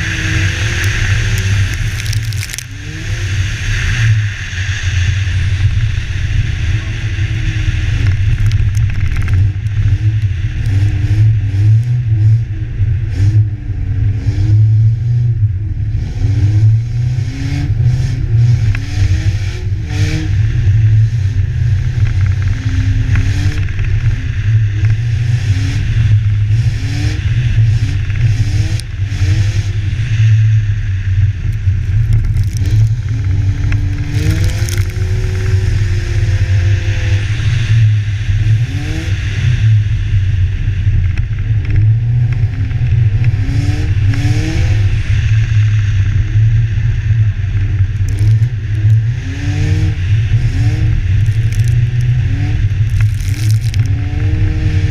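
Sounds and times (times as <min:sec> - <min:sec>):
snow scraping and crackling: 0:00.0 - 0:05.2, 0:31.6 - 0:36.6, 0:47.8 - 0:49.2, 0:50.0 - 0:54.4
car engine revving: 0:00.0 - 0:54.9
wind rumble on camera: 0:00.0 - 0:54.9.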